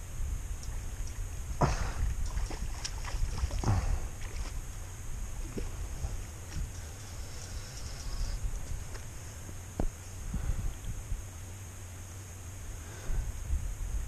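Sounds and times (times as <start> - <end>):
wind rumble on microphone: 0.0 - 14.0
water splashing in a river: 0.6 - 6.7.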